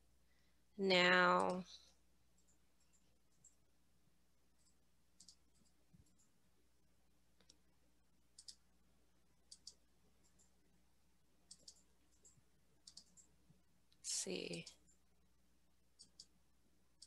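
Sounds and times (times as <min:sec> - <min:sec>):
computer mouse clicks: 0:01.4 - 0:01.6, 0:04.6 - 0:06.3, 0:08.3 - 0:08.6, 0:09.4 - 0:10.5, 0:11.4 - 0:13.3, 0:15.9 - 0:16.4.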